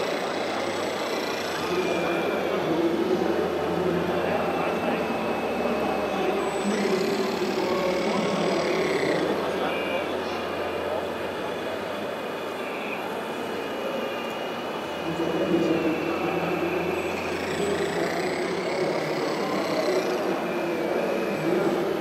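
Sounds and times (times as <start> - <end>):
crowd chatter: 0.0 - 22.0
hydraulic pump whining: 0.0 - 22.0.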